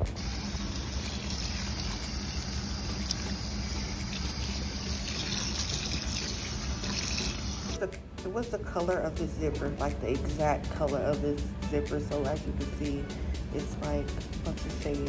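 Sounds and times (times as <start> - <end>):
faucet running into metal sink: 0.0 - 7.8.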